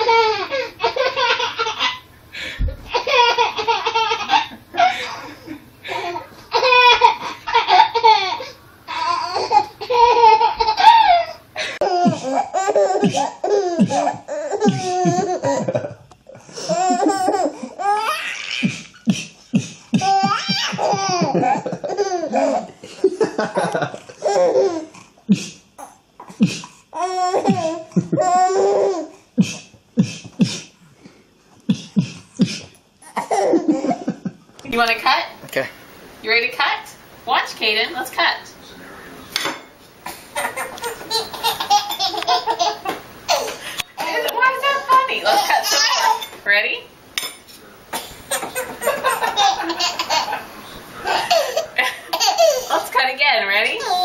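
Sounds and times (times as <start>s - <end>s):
baby laughing: 0.0s - 2.0s, 2.8s - 15.9s, 16.6s - 19.1s, 19.9s - 22.8s, 23.6s - 24.9s, 27.0s - 29.1s, 33.0s - 34.2s, 40.1s - 46.4s, 48.2s - 52.9s, 53.6s - 54.0s
man laughing: 11.8s - 17.5s, 18.7s - 24.2s, 27.5s - 28.5s, 48.3s - 52.7s
woman laughing: 20.0s - 24.0s, 40.4s - 46.3s, 48.4s - 52.9s.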